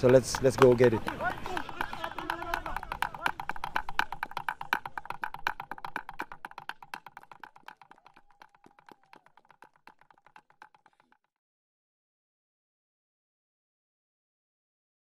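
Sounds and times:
music with clicking percussion: 0:00.0 - 0:11.1.

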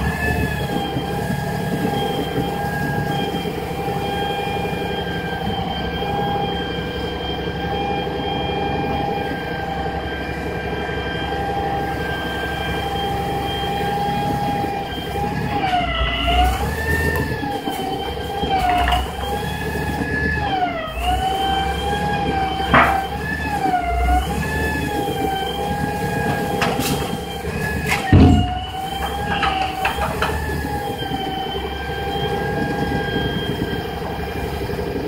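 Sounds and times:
diesel engine drone: 0:00.0 - 0:35.0
hydraulic whine: 0:00.0 - 0:35.0
heavy thump: 0:28.0 - 0:28.7.

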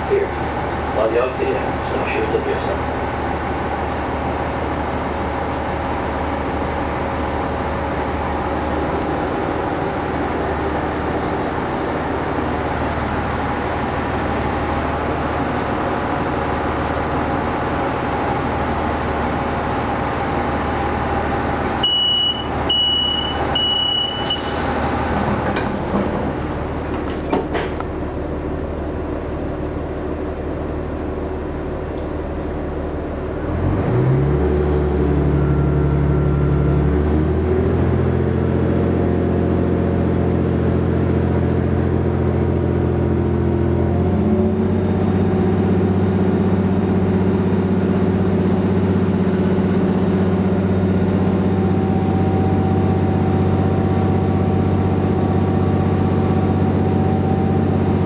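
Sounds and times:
diesel train engine accelerating: 0:00.0 - 0:58.0
door warning beeps: 0:21.8 - 0:24.6
train doors knocking shut: 0:26.9 - 0:27.8.

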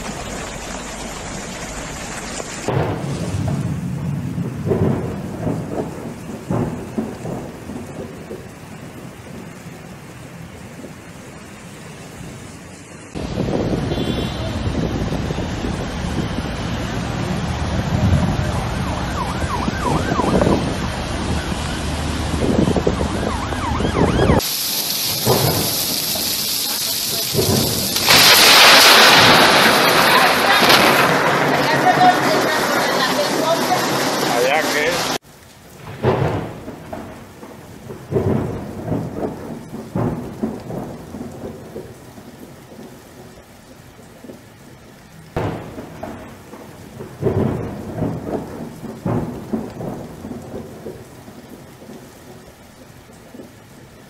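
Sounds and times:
truck engine rumble: 0:00.0 - 0:07.0, 0:12.9 - 0:24.4
rolling thunder rumbles: 0:00.0 - 0:24.4, 0:25.1 - 0:54.0
rain falling: 0:00.0 - 0:54.0
rushing water: 0:00.0 - 0:54.0
wind buffeting microphone: 0:13.2 - 0:24.4
siren wailing: 0:18.2 - 0:24.4.

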